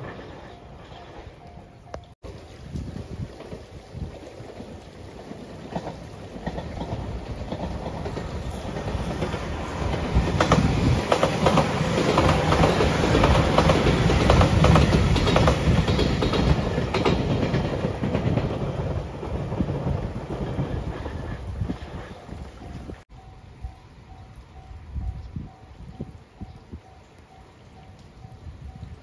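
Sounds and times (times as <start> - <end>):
electric train passing: 0.0 - 26.0
wheels clacking over rail joints: 3.0 - 23.0.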